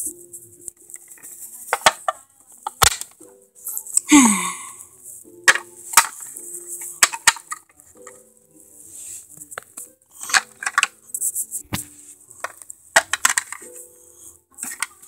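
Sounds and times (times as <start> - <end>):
faint music: 0.0 - 15.0
plastic toys clicking and tapping: 0.7 - 3.2, 5.4 - 8.2, 9.4 - 15.0.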